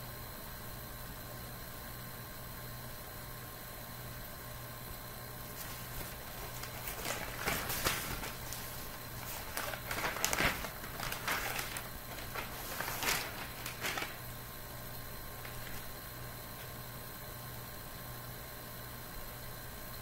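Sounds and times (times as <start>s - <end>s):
steady low hum: 0.0s - 20.0s
nest material rustling: 5.5s - 14.3s, 15.4s - 15.9s.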